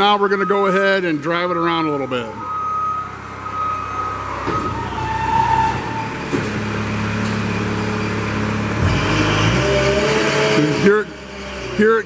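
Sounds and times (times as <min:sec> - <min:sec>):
high beeping tone: 0:00.0 - 0:04.3
diesel engine running: 0:00.0 - 0:12.0.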